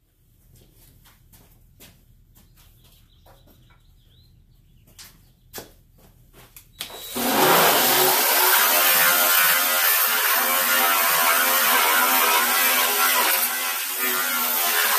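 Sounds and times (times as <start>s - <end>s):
disc sander grinding sheet metal: 7.0s - 14.9s.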